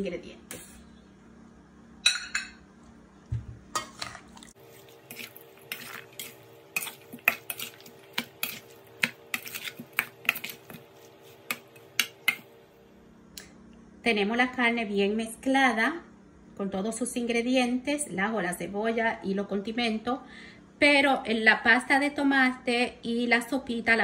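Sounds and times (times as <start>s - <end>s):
dishes clinking: 2.0s - 2.6s.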